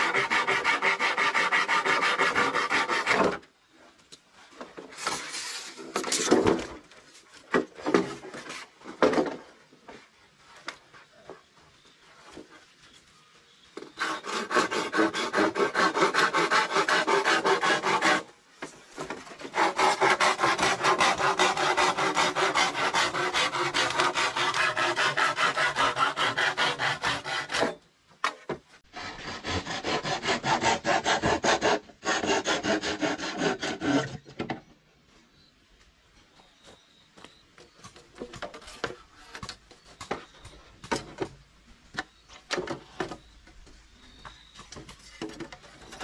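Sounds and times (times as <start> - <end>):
rapid rasping filing strokes: 0.0 - 3.3, 14.0 - 18.3, 19.5 - 27.8, 28.9 - 34.2.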